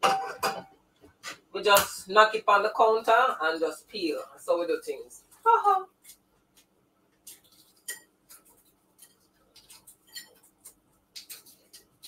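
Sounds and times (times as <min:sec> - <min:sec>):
eggshell crackling while peeled: 0:05.3 - 0:12.0.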